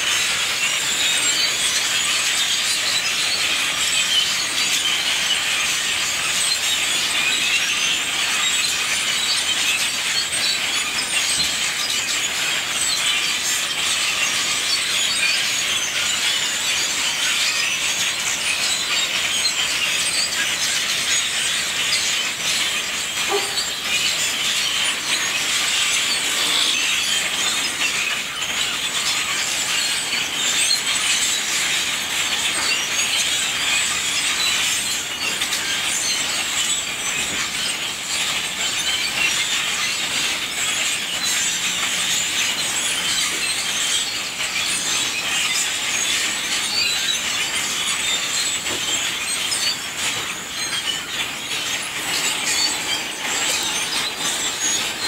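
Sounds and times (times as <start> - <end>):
flock of blackbirds calling: 0.0 - 55.0.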